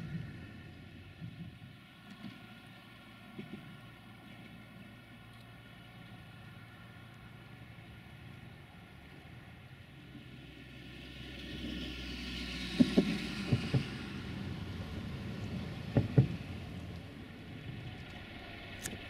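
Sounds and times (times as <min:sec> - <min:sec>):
traffic rushing overhead: 0:00.0 - 0:19.0
axles thumping over bridge joints: 0:15.8 - 0:16.7.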